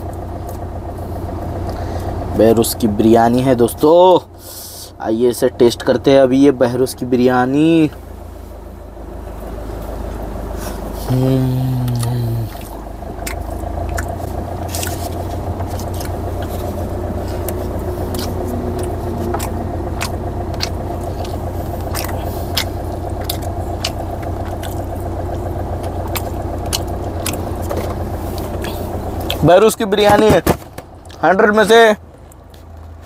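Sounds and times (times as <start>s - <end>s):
car idling hum: 0.0s - 33.0s.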